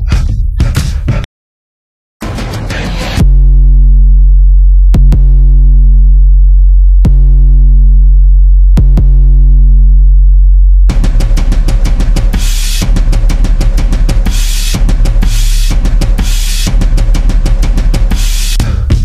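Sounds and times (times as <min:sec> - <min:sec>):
deep bass drone: 0:02.3 - 0:19.0
fast drum beat with cymbals: 0:10.9 - 0:19.0.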